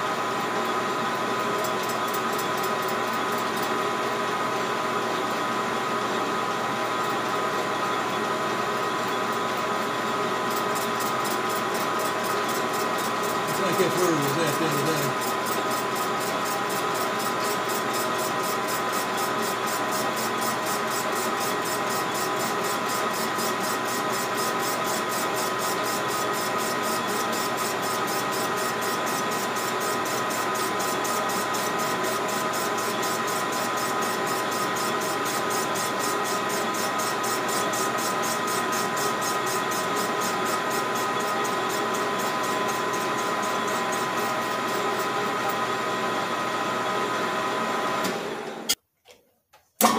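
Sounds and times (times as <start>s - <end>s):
metal lathe whining: 8.1s - 45.8s.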